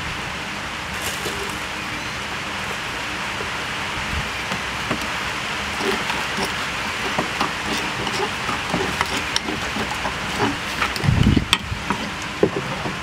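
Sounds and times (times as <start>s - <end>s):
spoon scraping in mortar: 5.8s - 12.2s.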